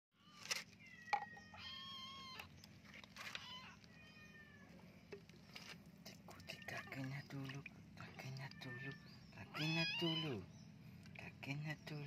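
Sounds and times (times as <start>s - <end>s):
kitten meowing: 0.2s - 2.5s, 3.4s - 4.7s, 8.4s - 10.4s.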